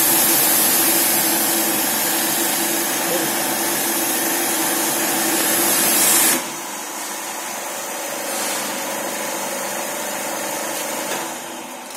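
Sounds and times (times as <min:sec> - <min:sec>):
pressure washer spray hiss: 0:00.0 - 0:06.5
electric motor and pump running: 0:00.0 - 0:11.9.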